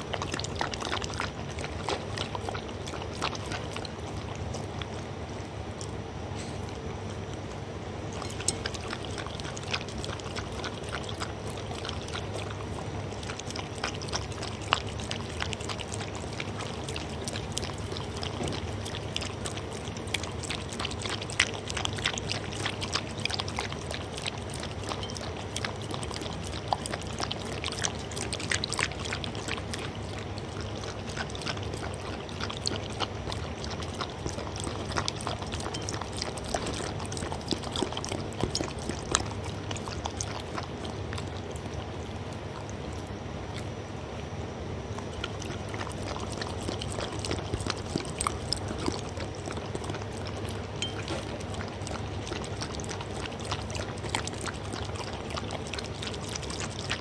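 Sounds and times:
dog lapping from a bowl: 0.0s - 57.0s.

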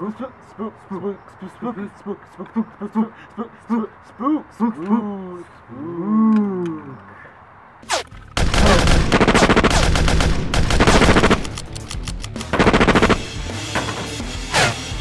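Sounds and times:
automatic rifle fire: 8.4s - 11.7s, 12.5s - 13.3s.

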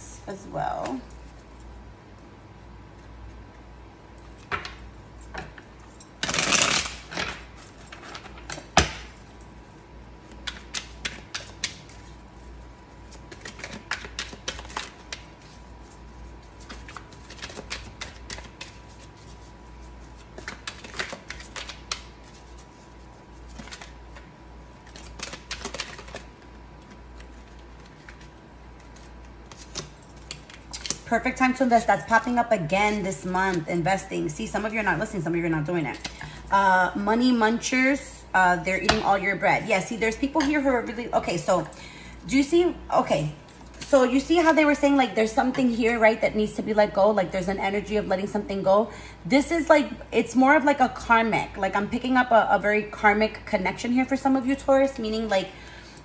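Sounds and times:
cards being shuffled: 10.2s - 12.2s, 13.0s - 31.1s.

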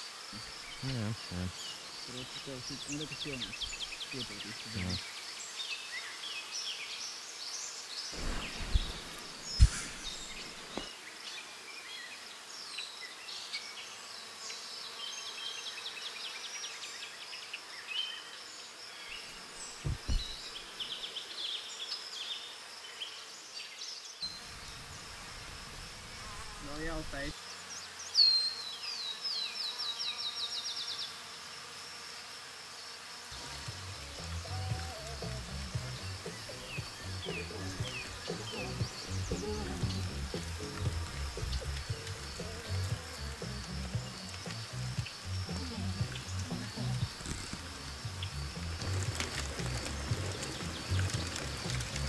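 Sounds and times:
small birds trilling: 0.0s - 12.0s, 17.9s - 22.4s, 23.9s - 31.2s, 33.3s - 52.0s
insects buzzing: 0.0s - 52.0s
handling thumps: 19.7s - 20.6s.

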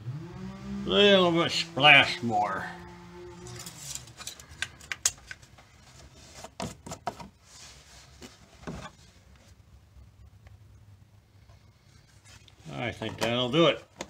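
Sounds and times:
handling clicks and knocks: 12.9s - 14.0s.

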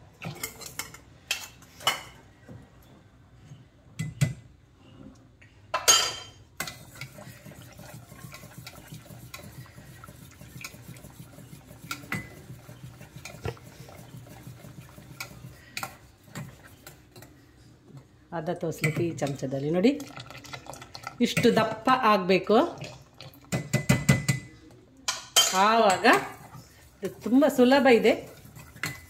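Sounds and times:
wire whisk beating in pot: 6.6s - 17.2s, 25.6s - 29.0s.

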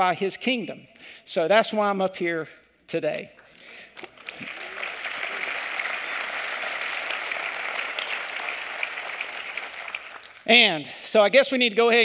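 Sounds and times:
crowd applauding: 4.0s - 10.5s.

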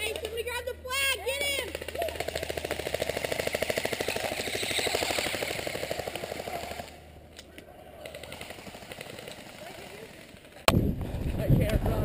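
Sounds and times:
airsoft gun firing full auto: 1.7s - 7.0s.

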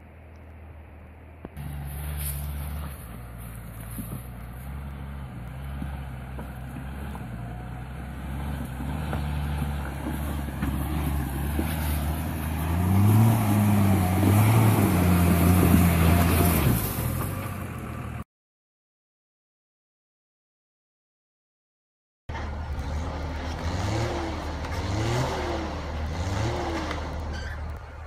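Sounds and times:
off-road vehicle engine revving: 1.6s - 18.2s, 22.3s - 28.0s.

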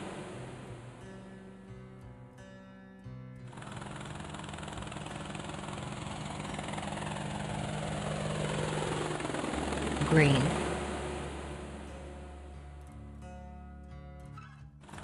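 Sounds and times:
helicopter engine and rotor: 0.0s - 1.0s, 3.5s - 12.9s.

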